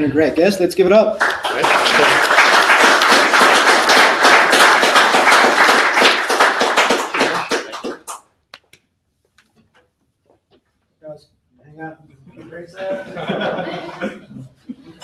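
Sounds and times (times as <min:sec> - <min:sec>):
audience applauding: 0:01.2 - 0:08.3.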